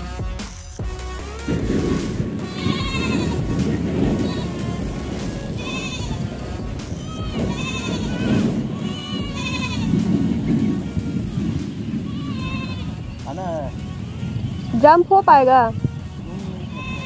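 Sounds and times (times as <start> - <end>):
goats bleating: 2.4 - 11.3, 11.9 - 13.2, 16.2 - 17.0.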